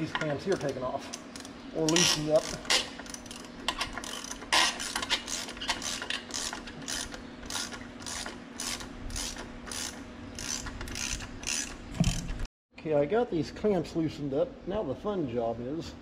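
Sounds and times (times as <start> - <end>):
ratchet wrench clicking: 0.2 - 12.3.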